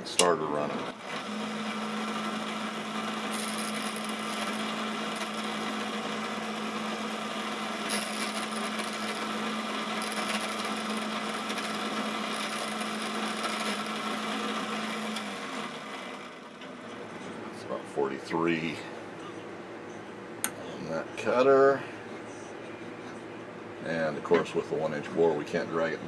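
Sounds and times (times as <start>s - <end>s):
grinder motor hum: 0.0s - 17.4s.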